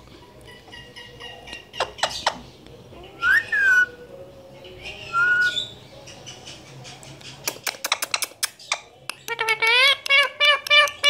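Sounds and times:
sharp clicks: 7.4 - 9.4.

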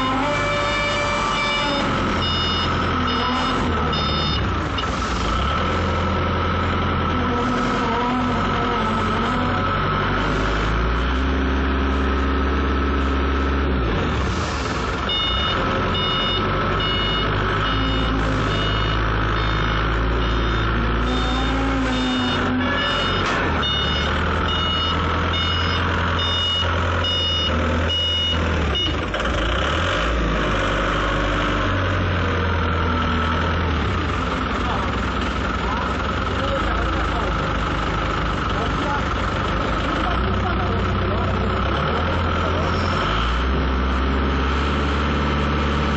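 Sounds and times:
reversing alarm beeping: 0.0 - 5.9, 15.1 - 29.1
forklift engine revving: 0.0 - 45.9.

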